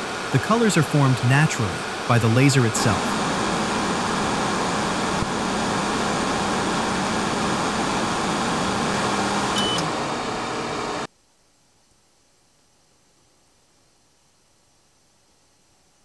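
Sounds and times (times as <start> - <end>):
laser engraver fan hiss: 0.0 - 11.0
low hum: 1.1 - 9.8
short high beep: 9.6 - 9.8.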